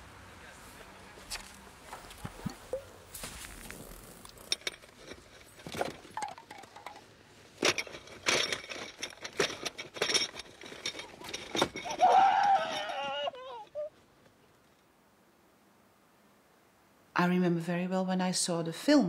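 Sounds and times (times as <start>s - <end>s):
scuffle with rustles and knocks: 0.6s - 6.8s
glass bottle clinking: 4.6s - 7.0s.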